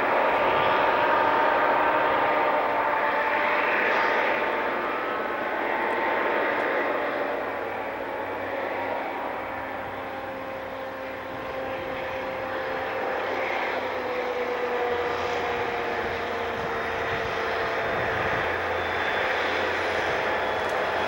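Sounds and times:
diesel locomotive engine drone: 0.0 - 21.0.

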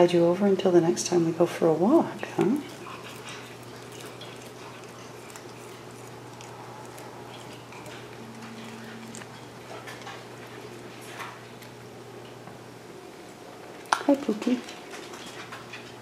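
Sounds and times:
steady low hum: 0.0 - 16.0
cat chewing grass: 2.2 - 12.4.

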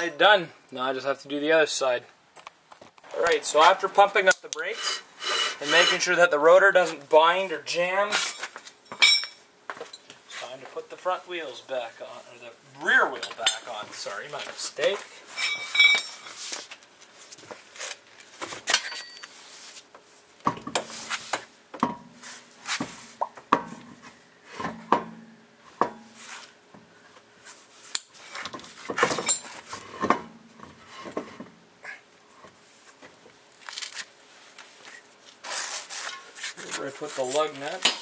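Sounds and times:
camera rubbing against clothing: 33.8 - 37.4.

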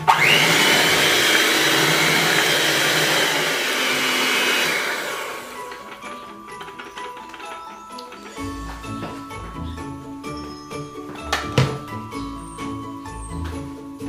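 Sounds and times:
electric hand mixer whisking batter: 0.0 - 8.6.

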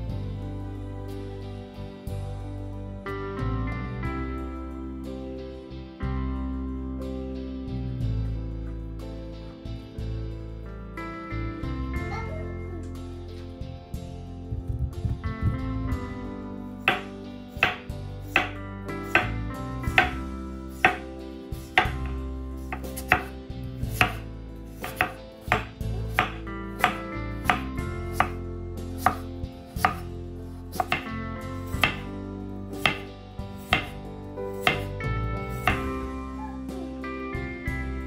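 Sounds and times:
knife chopping on cutting board: 16.9 - 28.4, 29.0 - 30.1, 30.7 - 32.1, 32.8 - 35.0, 35.6 - 35.9.

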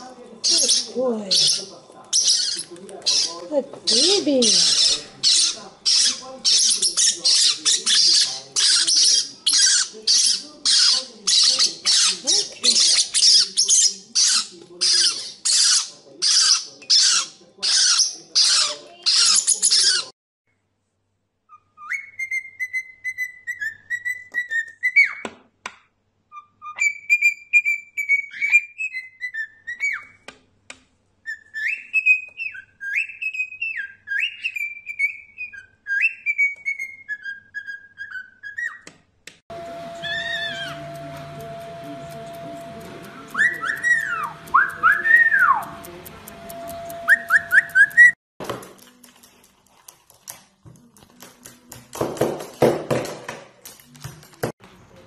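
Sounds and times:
parrotlets begging squawks: 0.4 - 20.1, 39.8 - 41.0, 43.2 - 45.8
cockatiel whistling a tune: 21.5 - 25.3, 26.3 - 30.2, 31.2 - 38.8, 39.6 - 42.4, 43.2 - 45.8, 46.5 - 48.2.

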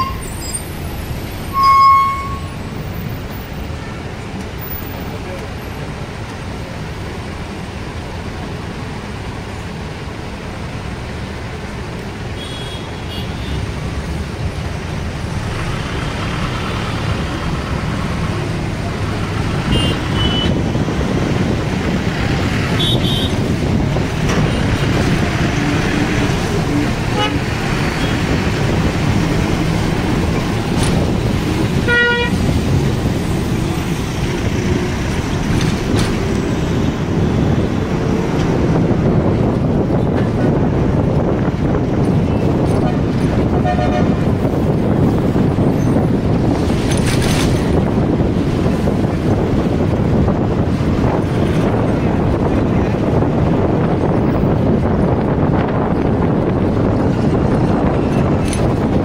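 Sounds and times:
bus engine rumble: 0.0 - 59.0
road and traffic noise: 0.0 - 59.0
vehicle horn toots: 1.5 - 2.5, 12.4 - 13.6, 19.7 - 20.6, 22.8 - 23.4, 27.2 - 27.4, 31.9 - 32.4, 42.8 - 44.2.

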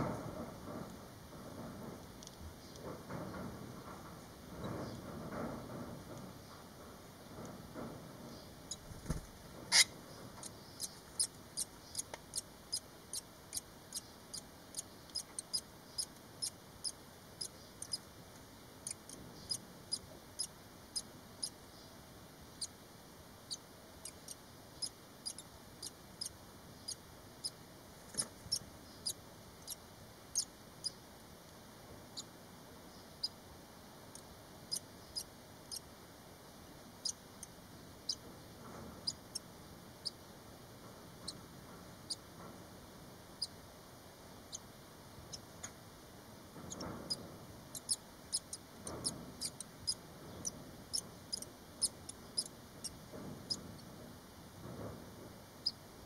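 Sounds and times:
nestlings peeping: 8.2 - 22.8, 23.4 - 31.1, 34.1 - 35.9, 37.0 - 38.2, 39.0 - 40.3, 42.1 - 42.3, 44.4 - 45.5, 46.6 - 53.8.

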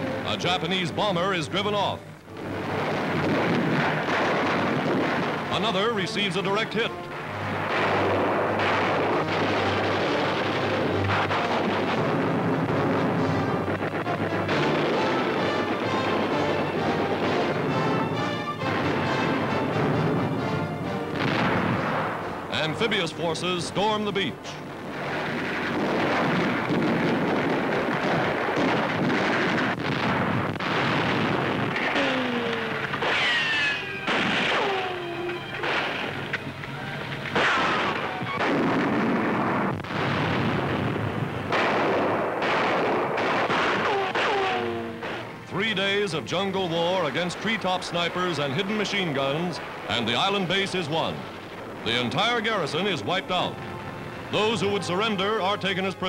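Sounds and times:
aircraft engines roaring: 0.0 - 30.6, 31.6 - 41.6, 43.8 - 56.0
explosions: 0.0 - 56.0
loud bangs: 0.0 - 56.0
gunfire: 1.7 - 23.2, 24.8 - 52.1
low drone: 31.8 - 40.0
falling whistling tones: 33.1 - 35.6.

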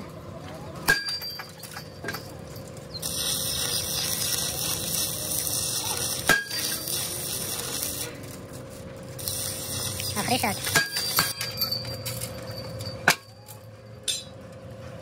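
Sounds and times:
ringing metal strikes: 10.6 - 14.4.

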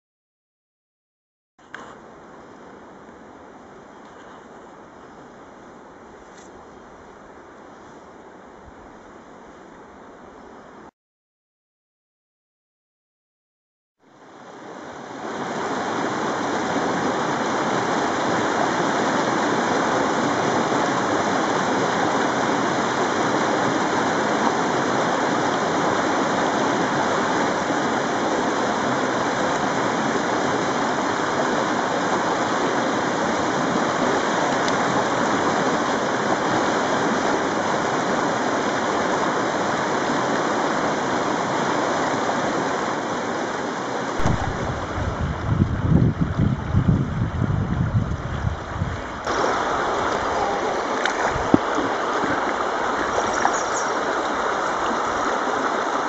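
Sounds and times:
river rapids rushing: 14.3 - 45.8, 48.3 - 56.0.

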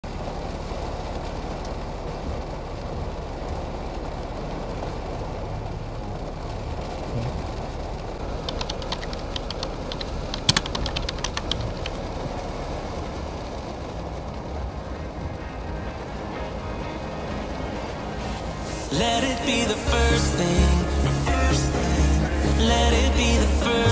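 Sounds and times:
heavy rain: 0.0 - 23.9
low rumble inside car: 0.1 - 23.9
sharp irregular clicks and taps: 8.4 - 12.0.

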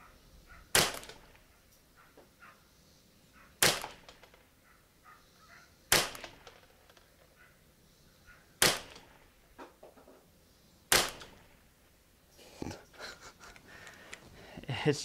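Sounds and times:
rifle shots with ringing tail: 0.7 - 1.4, 3.6 - 4.1, 5.9 - 6.8, 8.6 - 9.4, 10.9 - 11.6.

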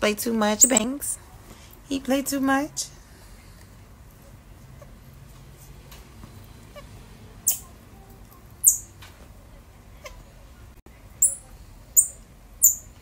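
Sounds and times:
high-pitched animal squeaks: 0.6 - 0.9, 7.5 - 7.7, 8.6 - 8.9, 11.2 - 11.4, 12.0 - 12.9.

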